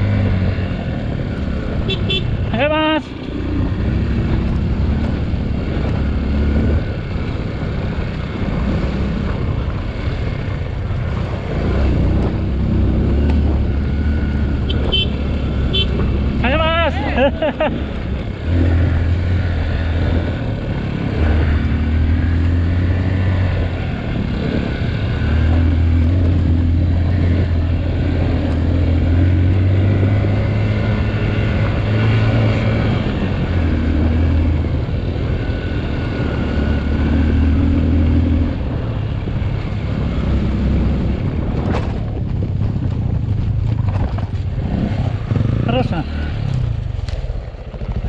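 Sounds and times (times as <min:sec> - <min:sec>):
dirt bike engine revving: 0:11.4 - 0:39.0, 0:44.6 - 0:46.8.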